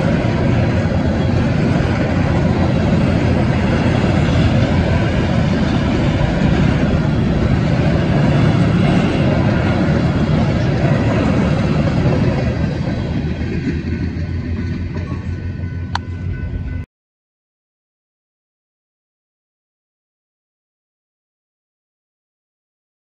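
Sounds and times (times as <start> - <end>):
train wheels rolling on rail: 0.0 - 16.8
wind buffeting microphone: 0.0 - 16.8.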